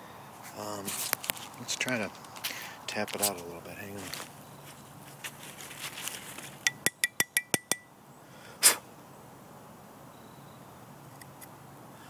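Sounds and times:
metallic taps on bullet: 6.7 - 7.9.

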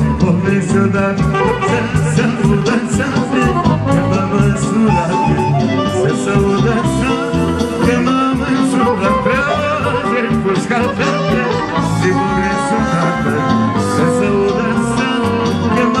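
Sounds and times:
live band with brass: 0.0 - 16.0
man singing through microphone: 0.0 - 16.0.

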